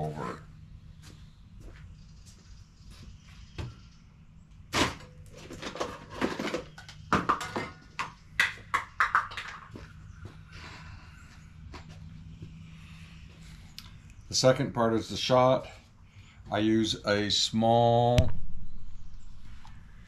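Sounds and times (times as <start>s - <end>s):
hard objects knocking and clattering: 5.4s - 10.0s.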